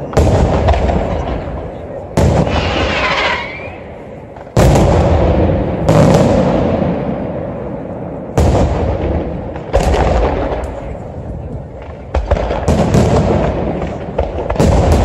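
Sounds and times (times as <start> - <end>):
firework shells booming: 0.0 - 15.0
rolling echo: 0.0 - 15.0
firework hiss and whistle: 2.4 - 3.9.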